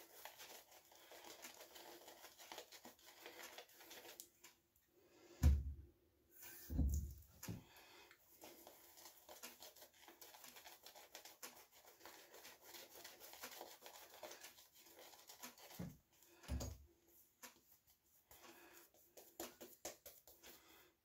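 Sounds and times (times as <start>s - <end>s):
brush scratching on scalp: 0.0s - 4.2s, 8.3s - 15.9s.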